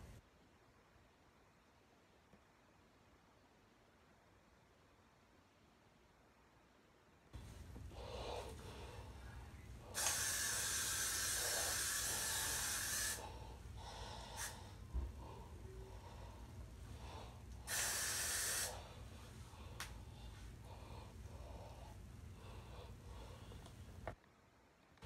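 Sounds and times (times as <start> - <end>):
aerosol hairspray hissing: 9.8 - 13.3, 14.2 - 14.9, 17.5 - 19.1.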